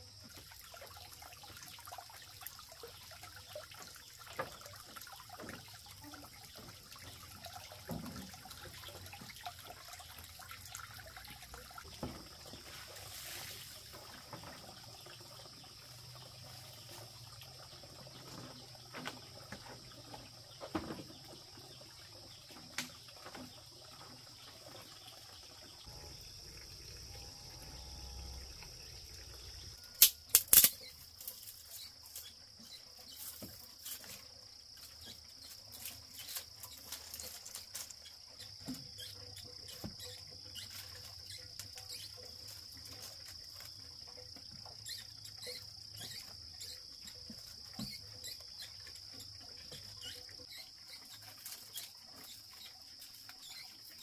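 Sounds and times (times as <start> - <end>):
high-pitched insect chorus: 25.9 - 54.0.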